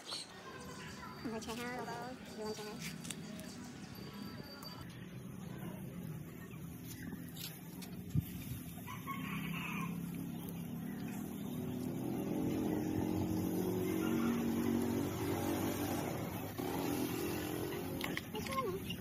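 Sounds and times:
engine hum: 4.8s - 19.0s
rooster crowing: 8.9s - 10.3s.

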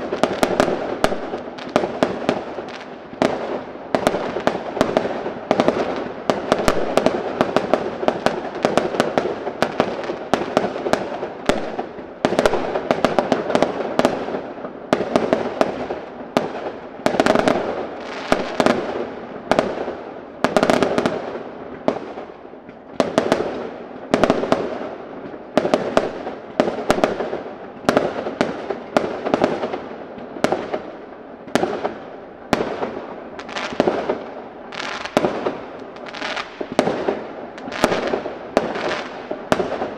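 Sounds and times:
fireworks bursting: 0.0s - 39.9s.

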